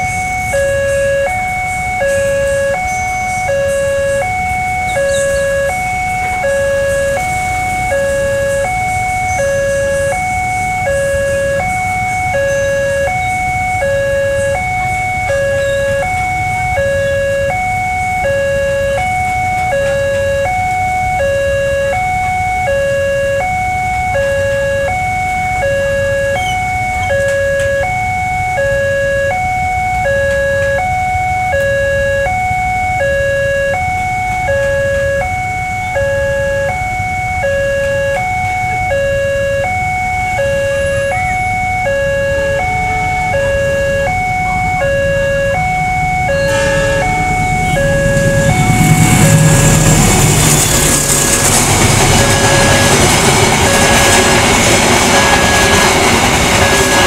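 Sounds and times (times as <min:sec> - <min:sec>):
level crossing alarm tones: 0:00.0 - 0:57.0
road traffic rumble: 0:00.0 - 0:57.0.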